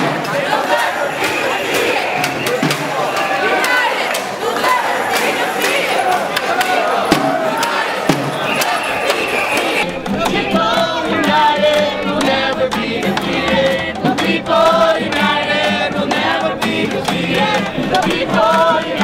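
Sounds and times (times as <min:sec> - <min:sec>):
group of people singing: 0:00.0 - 0:19.0
acoustic guitar strumming: 0:04.7 - 0:19.0.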